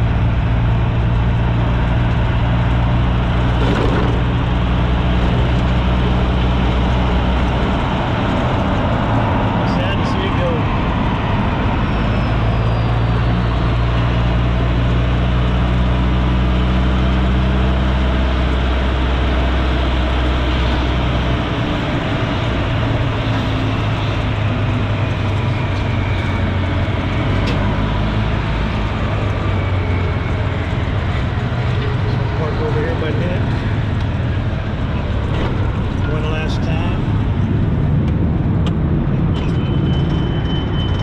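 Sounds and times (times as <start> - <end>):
deep hum: 0.0 - 15.5
vehicle running noise: 0.0 - 41.0.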